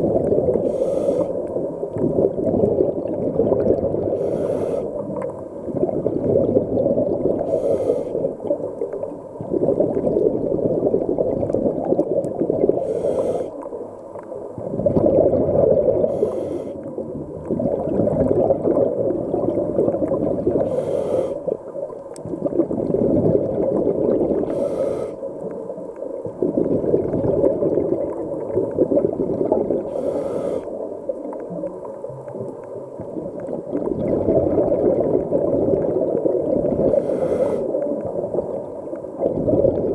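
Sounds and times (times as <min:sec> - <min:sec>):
bubbling exhale underwater: 0:00.0 - 0:13.7, 0:14.6 - 0:21.6, 0:22.2 - 0:25.2, 0:26.2 - 0:39.9
regulator inhale hiss: 0:00.5 - 0:01.6, 0:04.1 - 0:05.2, 0:07.4 - 0:08.6, 0:12.8 - 0:13.8, 0:16.0 - 0:16.9, 0:20.6 - 0:21.6, 0:24.5 - 0:25.4, 0:29.8 - 0:30.9, 0:36.9 - 0:38.0.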